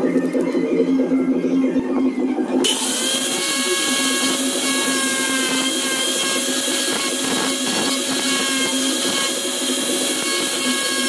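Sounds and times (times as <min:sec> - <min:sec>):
angle grinder grinding: 0:02.6 - 0:11.0.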